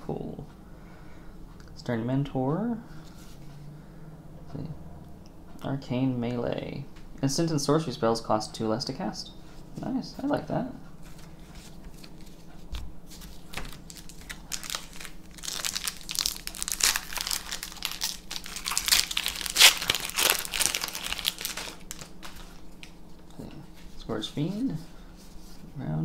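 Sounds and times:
foil wrapper crinkling and tearing: 13.1s - 23.0s.

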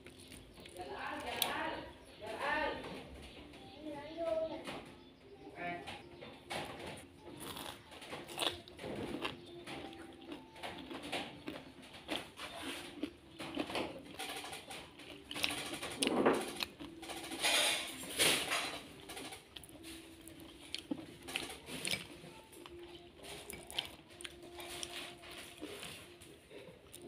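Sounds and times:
crispy food crunching: 0.0s - 1.6s, 7.3s - 18.0s, 19.0s - 27.0s.

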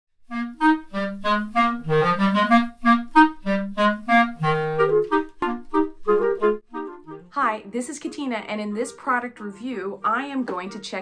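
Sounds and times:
clarinet playing lively melody: 0.2s - 7.3s, 8.0s - 11.0s.

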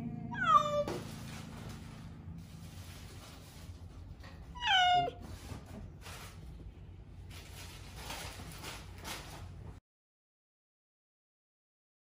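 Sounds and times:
cat meowing: 0.3s - 1.0s, 4.5s - 5.2s.

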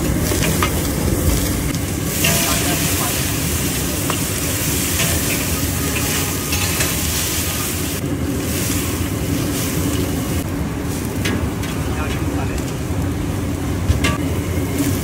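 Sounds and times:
pan sizzling and hissing: 0.0s - 12.0s
gas burner rumble: 0.0s - 15.0s.

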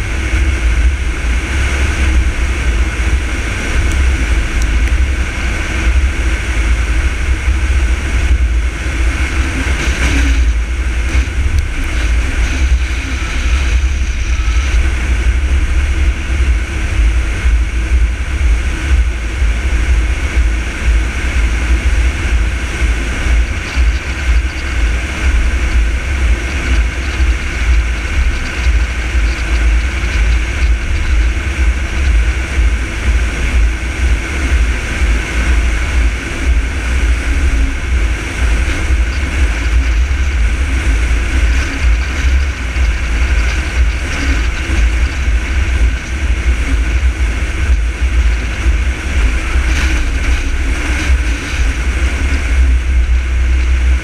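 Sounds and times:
car engine and tyre noise: 0.0s - 54.0s
wind buffeting microphone: 0.0s - 54.0s.

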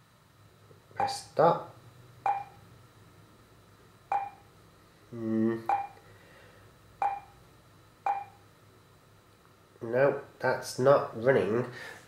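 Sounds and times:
fingertip tapping touchscreen: 2.3s - 2.5s, 4.1s - 4.4s, 5.7s - 6.0s, 7.0s - 7.3s, 8.1s - 8.3s
man humming mm: 5.1s - 5.8s.

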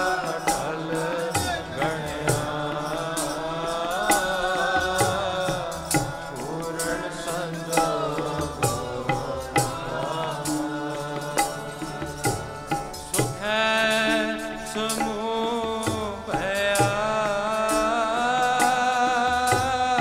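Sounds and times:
devotional singing: 0.0s - 20.0s
harmonium: 0.0s - 20.0s
tabla beat: 0.0s - 20.0s.

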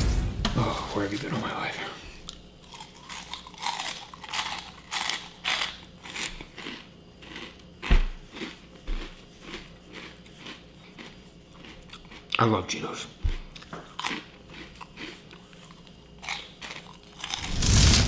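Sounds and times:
chips crunched and chewed: 2.3s - 12.9s, 13.5s - 18.0s.

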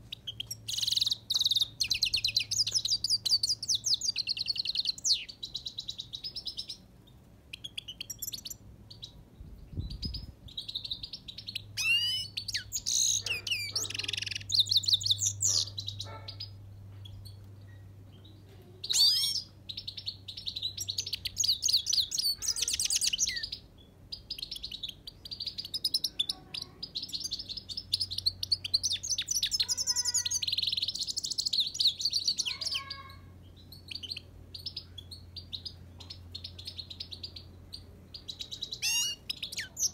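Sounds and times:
finch twittering song: 0.0s - 39.9s.

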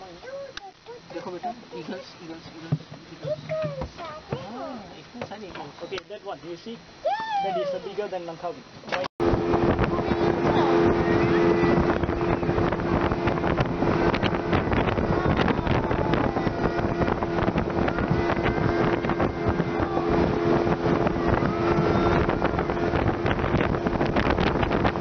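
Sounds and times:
motorboat engine humming: 6.8s - 25.0s
wind buffeting microphone: 9.2s - 25.0s.

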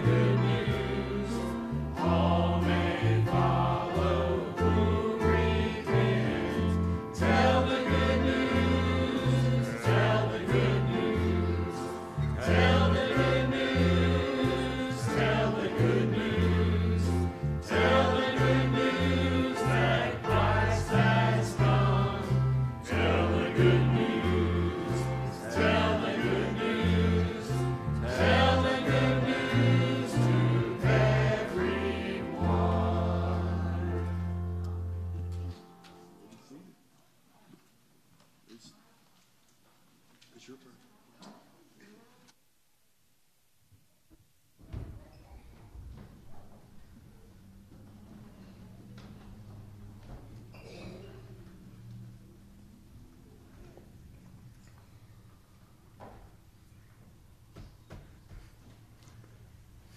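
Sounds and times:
instrumental accompaniment: 0.0s - 36.5s
choir singing gospel: 0.0s - 36.6s.

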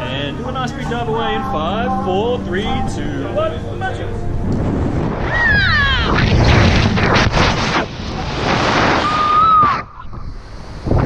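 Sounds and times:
wind rushing over microphone: 4.1s - 11.0s.

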